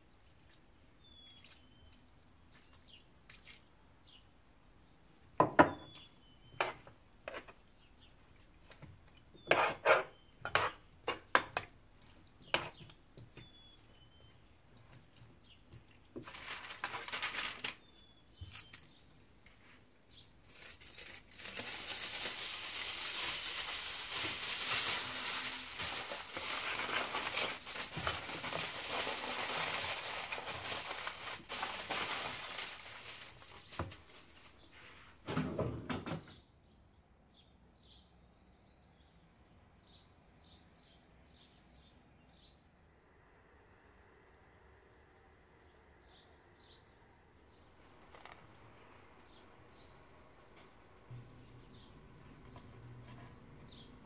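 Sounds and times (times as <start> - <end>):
baking paper rustling: 14.8 - 35.2, 47.8 - 49.9
aluminium foil crinkling: 16.1 - 34.7, 47.8 - 48.6.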